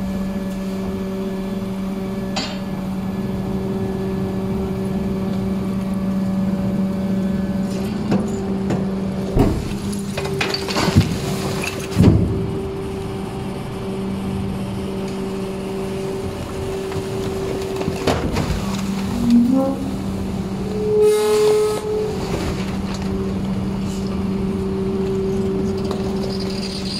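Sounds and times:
held whine: 0.0s - 26.9s
hydraulic packer humming: 0.0s - 26.9s
rising squeal: 18.9s - 26.9s.

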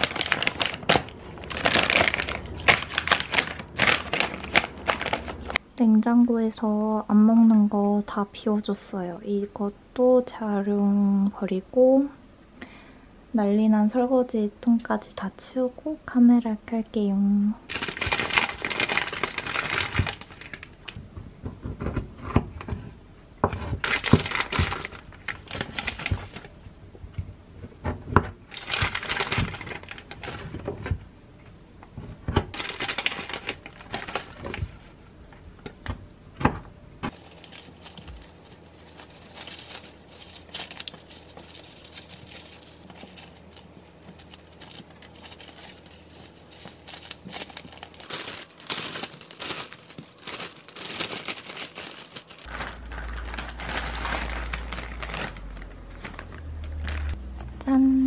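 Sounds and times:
plastic wrap crinkling: 0.0s - 5.6s, 17.7s - 21.0s, 23.8s - 26.5s, 28.5s - 30.9s, 32.5s - 34.9s, 37.1s - 57.2s.

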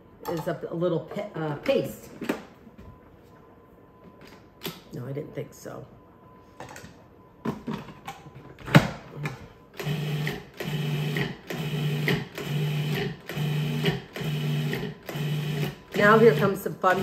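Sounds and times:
food processor motor pulses: 9.7s - 17.0s.

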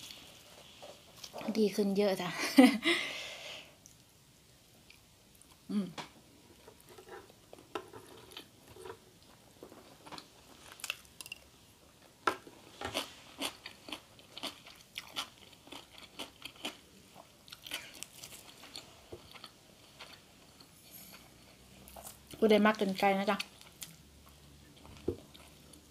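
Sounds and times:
person chewing crunchy food: 12.8s - 22.4s, 23.4s - 25.9s.

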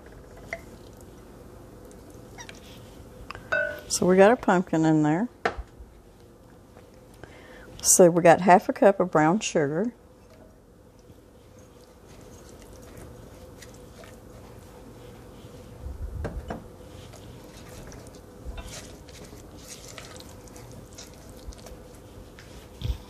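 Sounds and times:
faint steady hum: 0.0s - 23.0s
spoon squishing and scraping puree: 1.8s - 3.5s, 10.2s - 15.8s, 16.8s - 23.0s.

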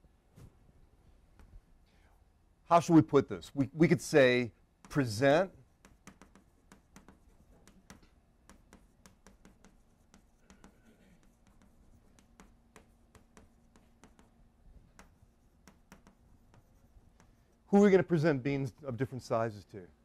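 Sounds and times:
faint steady hum: 0.0s - 20.0s
faint irregular clicks and taps: 1.3s - 2.0s, 4.8s - 17.6s.

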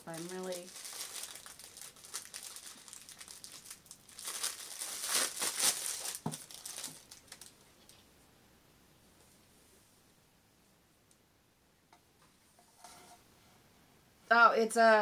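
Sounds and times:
packaging crinkling and rustling: 0.0s - 7.6s.

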